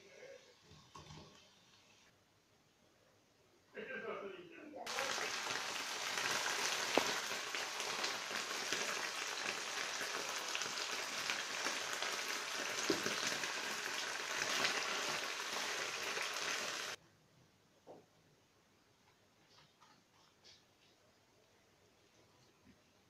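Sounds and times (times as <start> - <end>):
sauce sizzling in a frying pan: 4.9 - 17.0.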